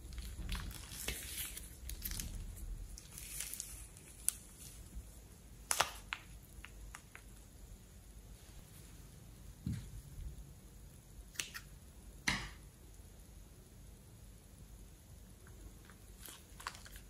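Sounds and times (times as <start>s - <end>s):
slime squelching and crackling: 0.0s - 4.9s, 15.8s - 17.0s.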